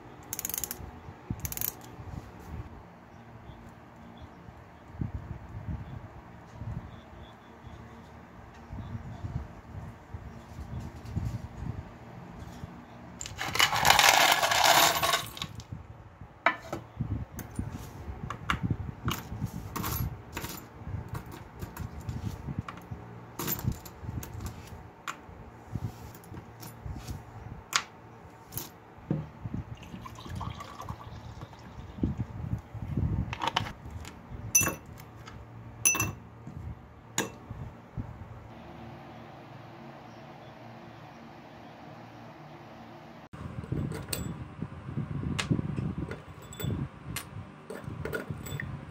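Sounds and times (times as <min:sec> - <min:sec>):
small metal parts clinking: 0:00.2 - 0:00.8, 0:01.4 - 0:02.0, 0:13.2 - 0:15.6, 0:34.6 - 0:35.1, 0:35.8 - 0:36.2, 0:46.2 - 0:48.7
parts dropping into glass: 0:13.2 - 0:15.6, 0:34.6 - 0:34.9, 0:35.8 - 0:36.2, 0:37.2 - 0:37.4.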